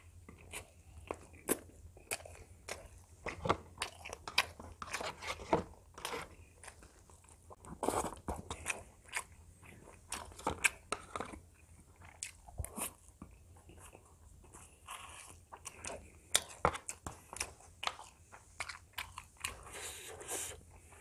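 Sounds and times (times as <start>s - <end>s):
chewing crunchy fried chicken: 0.0s - 21.0s.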